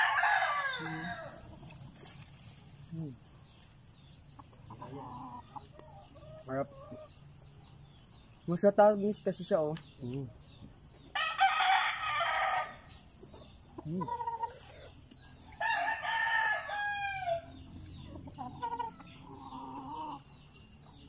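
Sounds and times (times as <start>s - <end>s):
rooster crowing: 0.0s - 1.5s, 11.1s - 12.9s, 15.6s - 17.6s.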